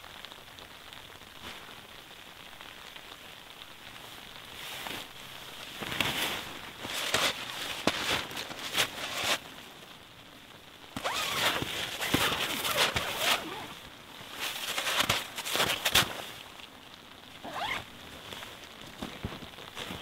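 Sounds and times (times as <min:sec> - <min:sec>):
nylon fabric rustling: 0:04.4 - 0:09.9, 0:10.8 - 0:20.0
tent door zipper rasping: 0:06.8 - 0:09.4, 0:11.0 - 0:16.2, 0:17.4 - 0:17.9.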